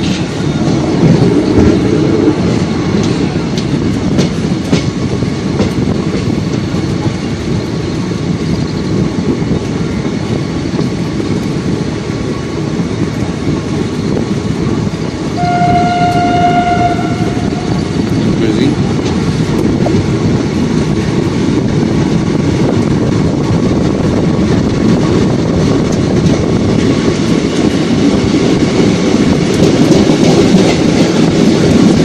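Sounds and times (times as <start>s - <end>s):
wheels clicking over rail joints: 0.0s - 15.4s, 17.4s - 32.0s
train rumble and wheel clatter: 0.0s - 32.0s
train horn: 15.4s - 18.1s.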